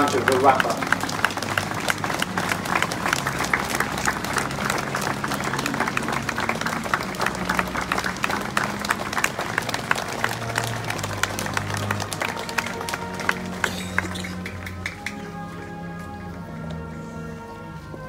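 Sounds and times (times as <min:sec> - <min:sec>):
crowd applauding: 0:00.0 - 0:15.5.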